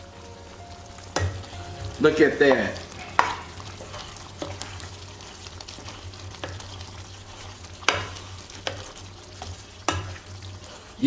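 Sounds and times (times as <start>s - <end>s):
stew simmering and bubbling: 0.0s - 11.0s
spoon knocking against pan: 1.1s - 1.5s, 3.1s - 3.8s, 7.8s - 8.8s, 9.4s - 10.2s.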